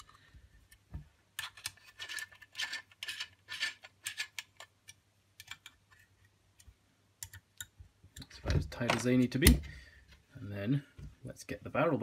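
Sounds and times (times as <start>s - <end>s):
allen key scraping screw: 1.4s - 4.7s.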